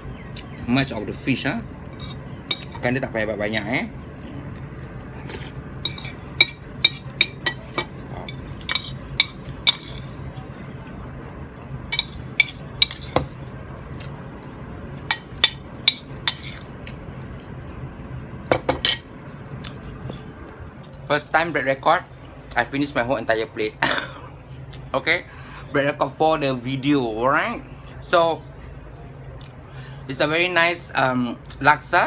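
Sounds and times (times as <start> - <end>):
low steady hum: 0.0 - 32.0
cutlery clinking on a ceramic bowl: 5.8 - 10.1, 11.9 - 13.3, 15.0 - 16.7, 18.5 - 19.1.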